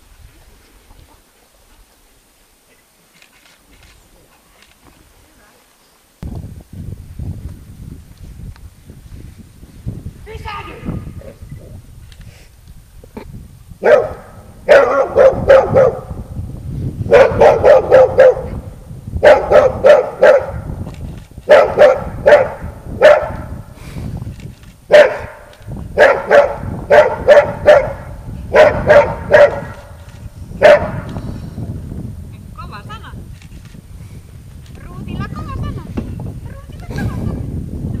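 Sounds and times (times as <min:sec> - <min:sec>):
dog barking: 0:13.8 - 0:16.1, 0:17.1 - 0:18.6, 0:19.2 - 0:20.6, 0:21.5 - 0:23.5, 0:24.9 - 0:25.4, 0:26.0 - 0:29.8, 0:30.6 - 0:31.1.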